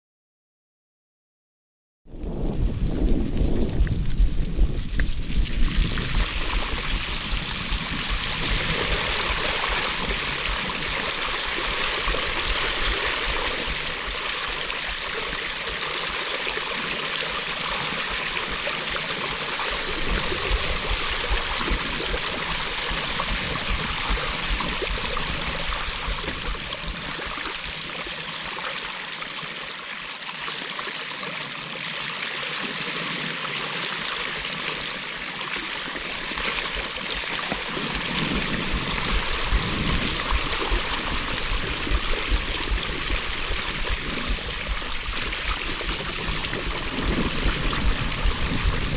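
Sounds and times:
wind rumble on microphone: 2.1 - 16.2, 17.3 - 27.9, 35.9 - 48.9
bike tyres splashing through water: 2.7 - 29.1, 33.7 - 48.9.

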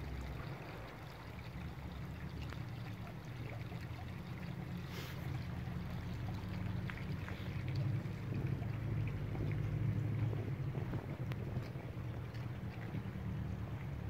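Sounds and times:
water flowing in gutter: 0.0 - 14.0
low rumble: 5.5 - 14.0.

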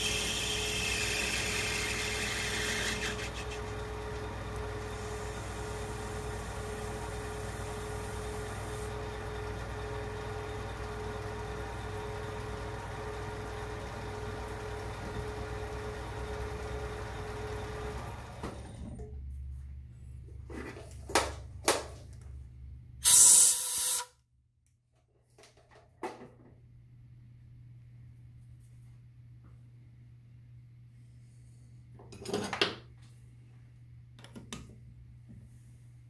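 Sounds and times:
metal lathe whining: 0.0 - 18.4.

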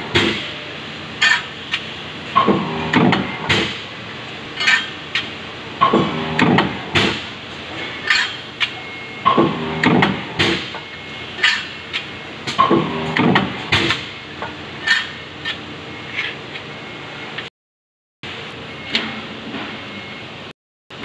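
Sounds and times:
stamping press metallic clanks: 2.4 - 3.8, 5.8 - 7.3, 9.3 - 10.8.

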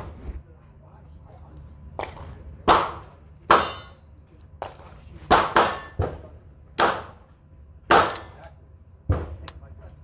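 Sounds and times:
echoing gunshots: 7.9 - 8.4.

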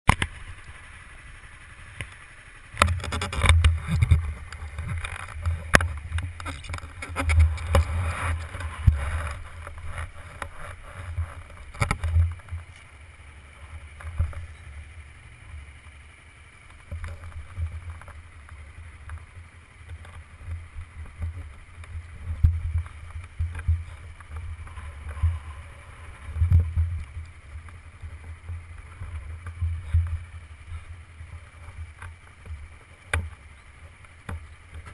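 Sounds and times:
wind buffeting microphone: 2.7 - 14.6, 20.0 - 32.0.

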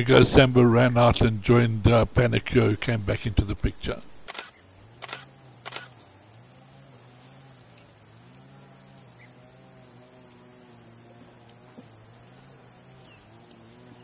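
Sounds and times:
faint clicks: 4.2 - 6.1, 7.7 - 8.5.

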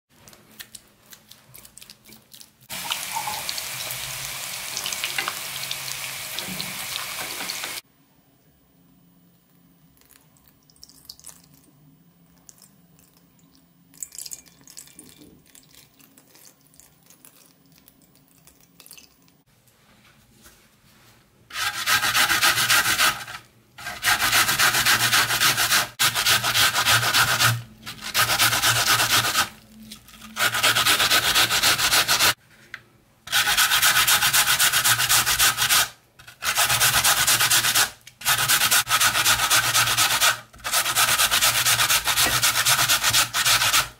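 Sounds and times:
grating on metal box grater: 33.3 - 43.9.

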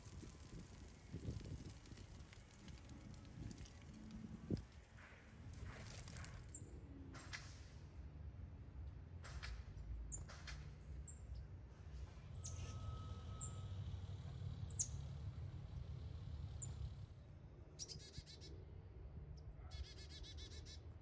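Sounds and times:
small songbirds chirping: 14.5 - 15.0.

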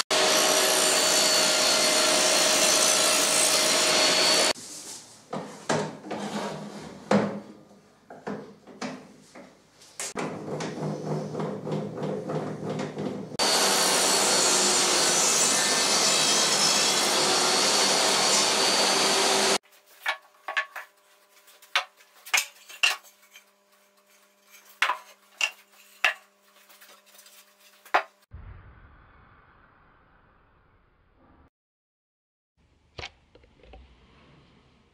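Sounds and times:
table saw cutting wood: 0.0 - 4.6, 13.4 - 19.6.

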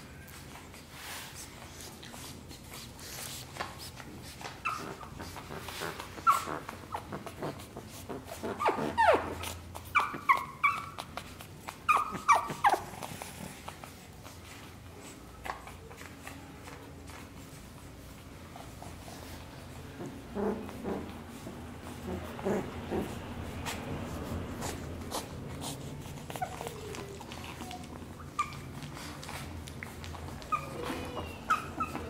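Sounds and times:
puppy yipping and whimpering: 4.4 - 7.6, 8.2 - 13.7, 26.1 - 32.0.

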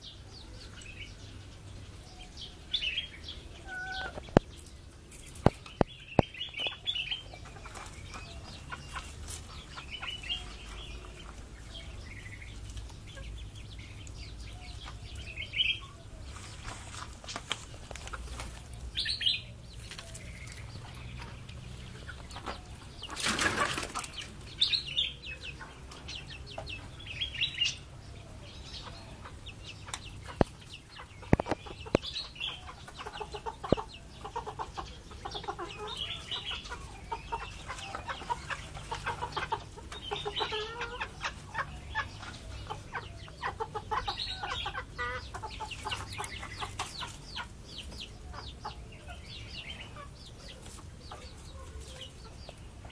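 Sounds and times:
chickens clucking: 0.0 - 52.9
rustling: 16.2 - 18.8.

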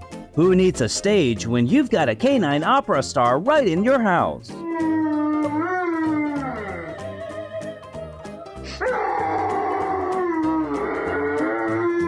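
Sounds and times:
guitar backing track: 0.0 - 12.0
dog howling: 4.6 - 12.0.

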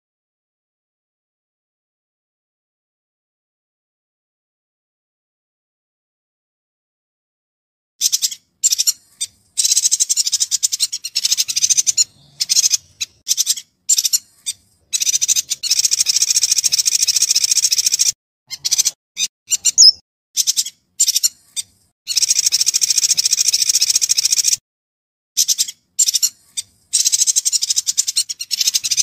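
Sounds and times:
bird chattering trills: 8.0 - 24.6
loud clear bird note: 19.7 - 20.0.

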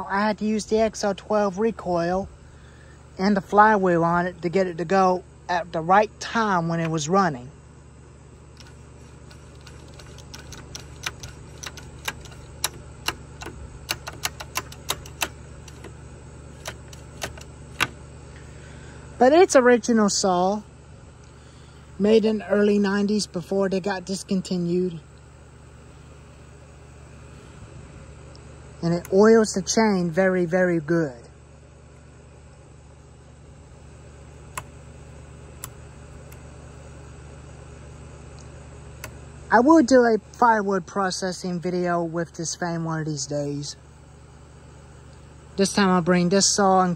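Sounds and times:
low hum: 0.0 - 46.9
screwdriver clicks and taps: 8.6 - 15.9, 16.6 - 17.9.

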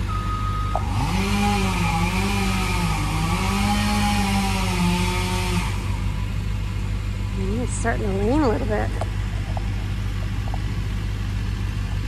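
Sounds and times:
truck engine running: 0.0 - 12.0
chainsaw revving and cutting: 0.7 - 6.2.

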